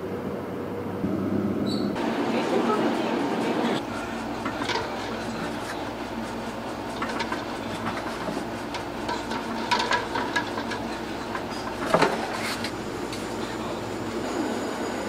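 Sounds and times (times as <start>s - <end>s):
steady background hum: 0.0s - 15.0s
eggs clicking against pot: 4.3s - 12.1s.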